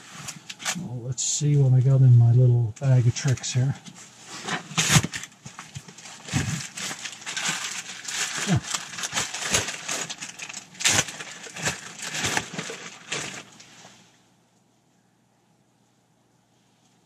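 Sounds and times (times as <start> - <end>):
rustling through a pack: 4.0 - 14.0
small items clicking and knocking: 4.8 - 13.5.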